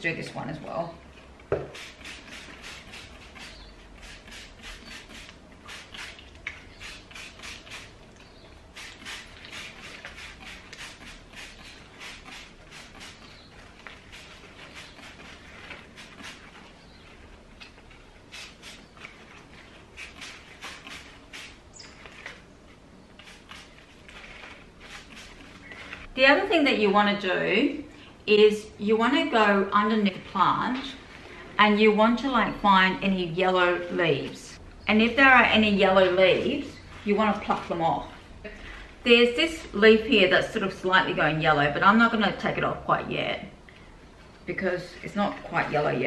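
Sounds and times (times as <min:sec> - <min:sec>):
spray bottle spritzing: 0:01.6 - 0:08.0, 0:08.7 - 0:16.6, 0:18.3 - 0:19.2, 0:19.9 - 0:22.2, 0:23.2 - 0:25.7.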